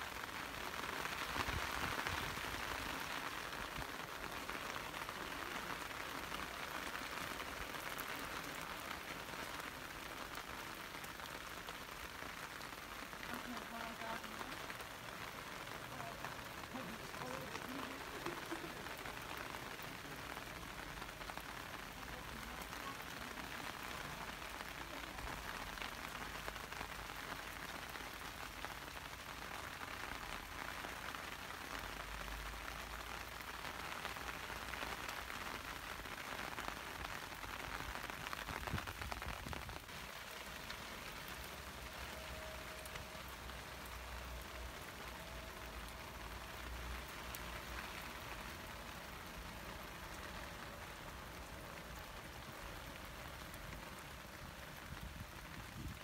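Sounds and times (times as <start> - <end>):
patter of falling water: 0.0 - 56.0.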